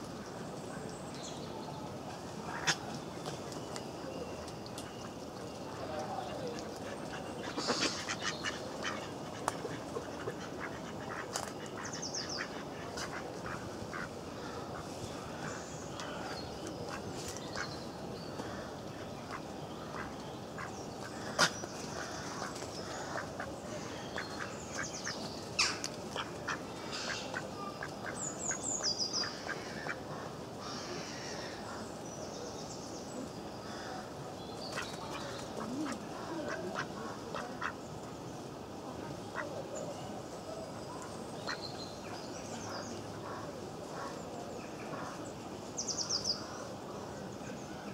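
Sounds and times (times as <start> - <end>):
ducks quacking: 6.9 - 14.1, 34.8 - 37.8
clicks of foraging in leaf litter: 15.9 - 18.6, 24.2 - 28.2.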